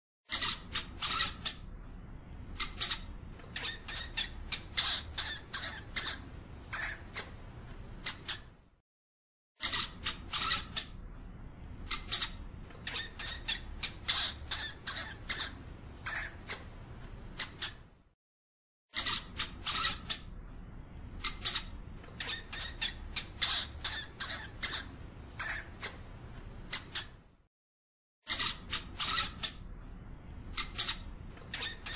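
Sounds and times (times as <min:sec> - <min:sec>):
hamster squeaking: 0:00.3 - 0:01.7, 0:02.6 - 0:07.4, 0:08.0 - 0:08.6, 0:09.6 - 0:11.0, 0:11.9 - 0:16.8, 0:17.4 - 0:17.9, 0:18.9 - 0:20.3, 0:21.2 - 0:26.1, 0:26.7 - 0:27.2, 0:28.3 - 0:29.7, 0:30.5 - 0:31.9
faint low background noise: 0:10.9 - 0:12.8.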